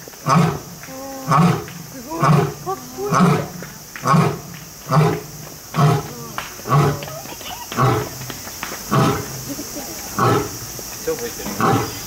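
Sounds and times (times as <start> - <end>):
lion roaring grunts: 0.2 - 7.1, 11.5 - 12.0.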